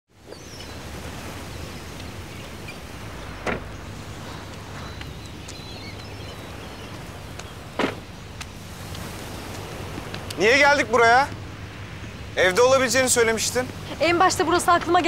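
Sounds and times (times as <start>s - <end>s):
low outdoor rumble: 0.8s - 15.0s
sharp thuds: 3.4s - 4.9s, 7.8s - 8.5s.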